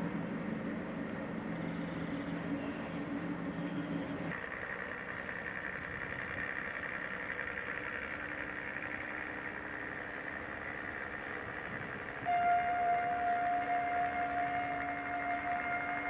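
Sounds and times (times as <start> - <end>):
faint high chirps: 0.0 - 4.4, 12.1 - 16.0
loud steady tone: 0.0 - 4.4, 11.3 - 16.0
diesel locomotive engine running: 0.0 - 16.0.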